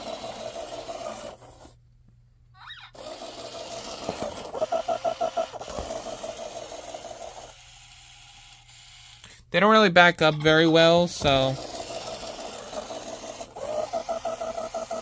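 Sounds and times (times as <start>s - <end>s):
small toy motor whirring: 0.0s - 1.8s, 2.6s - 9.4s, 11.2s - 15.0s
rapid rattling pulses: 11.3s - 15.0s.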